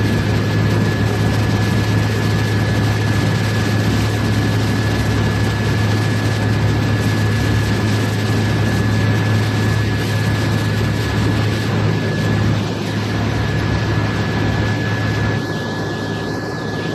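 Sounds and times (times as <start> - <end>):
boat engines droning: 0.0 - 16.9
thin steady whine: 0.0 - 16.9
wind noise: 0.0 - 16.9.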